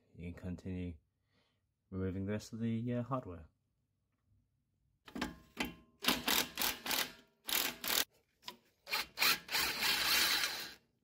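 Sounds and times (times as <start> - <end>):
hand ratchet clicking: 6.0 - 8.1.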